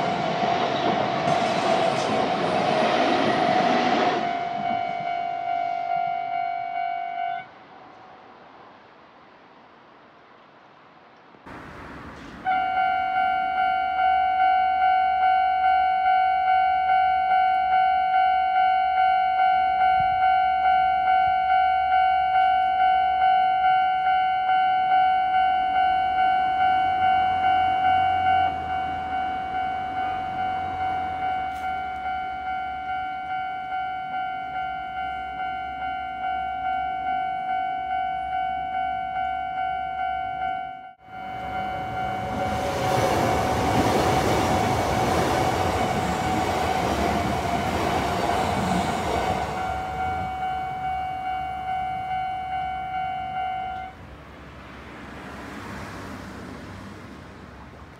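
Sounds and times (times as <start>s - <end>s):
level-crossing warning bell ringing: 3.6s - 7.5s, 12.4s - 54.0s.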